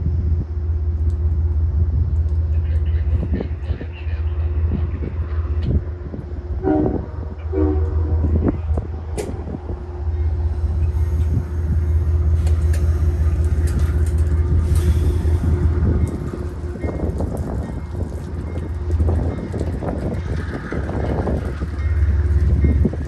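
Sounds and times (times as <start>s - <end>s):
diesel locomotive rumbling: 0.0s - 23.0s
train horn toots: 6.6s - 8.6s.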